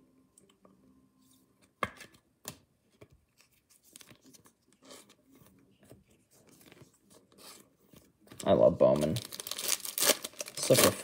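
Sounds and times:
cards rustling and scraping: 0:02.9 - 0:08.4.

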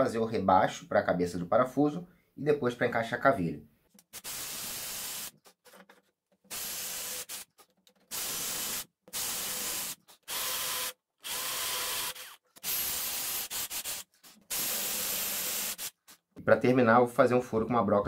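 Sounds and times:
cordless drill boring into wood: 0:04.2 - 0:05.3, 0:06.5 - 0:07.5, 0:08.1 - 0:16.0.

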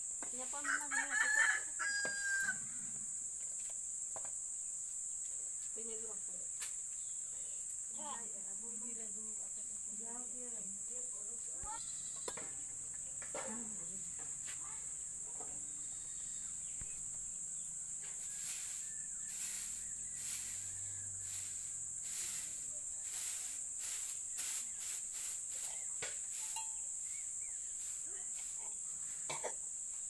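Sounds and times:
insects droning: 0:00.0 - 0:30.0
hand broom sweeping ash: 0:17.9 - 0:29.3.

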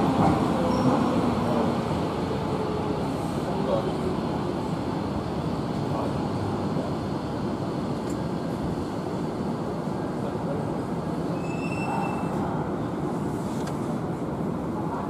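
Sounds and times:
train wheels rumbling on rail: 0:00.0 - 0:15.0
wheel squeal: 0:11.4 - 0:12.4.

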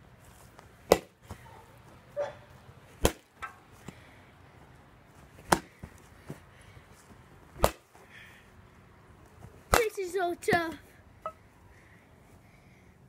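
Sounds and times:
baseball bat hitting pumpkin: 0:00.8 - 0:01.2, 0:03.0 - 0:03.6, 0:05.4 - 0:05.8, 0:07.6 - 0:07.9, 0:09.7 - 0:10.0.

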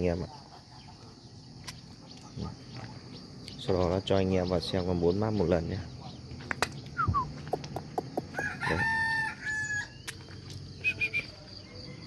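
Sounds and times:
bird chirps: 0:00.0 - 0:08.5, 0:09.4 - 0:12.0
rooster crowing: 0:08.3 - 0:10.0.

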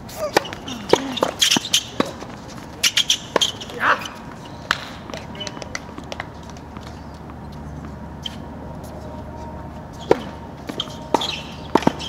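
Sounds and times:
racket hitting tennis ball: 0:00.1 - 0:09.2, 0:09.9 - 0:12.0
players shouting: 0:03.4 - 0:04.3
ball bouncing on hard court: 0:10.0 - 0:12.0.

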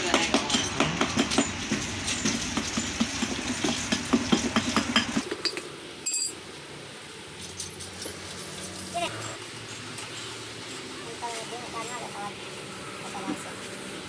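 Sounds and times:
sharp metallic clink: 0:06.0 - 0:06.4.

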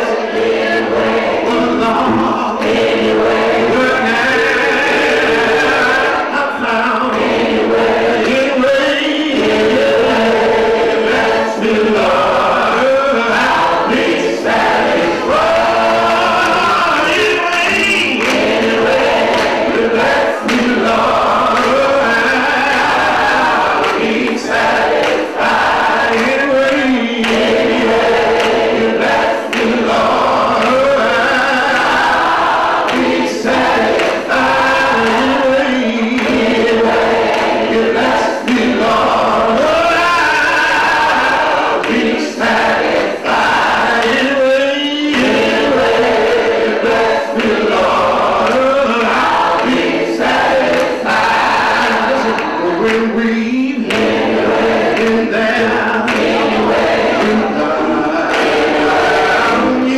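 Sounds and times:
man singing into a microphone: 0:00.0 - 0:19.0, 0:19.8 - 0:28.2, 0:28.8 - 0:32.2, 0:33.2 - 0:59.9
gospel choir singing: 0:00.0 - 0:59.9.

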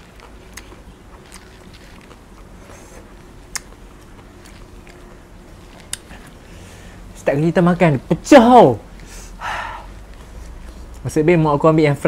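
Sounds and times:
close-up chewing: 0:00.0 - 0:07.2, 0:08.9 - 0:11.1.

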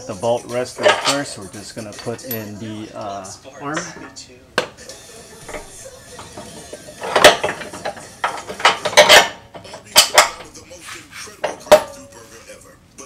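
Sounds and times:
metal suspension arm clanking: 0:00.8 - 0:02.4, 0:05.4 - 0:10.6.

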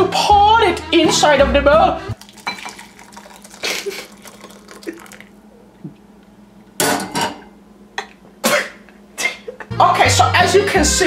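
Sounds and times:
hot water pouring into bowl: 0:02.2 - 0:05.4.

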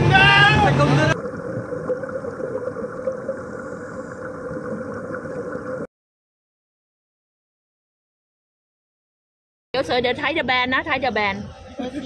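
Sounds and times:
muffled underwater motor drone: 0:00.0 - 0:05.8.

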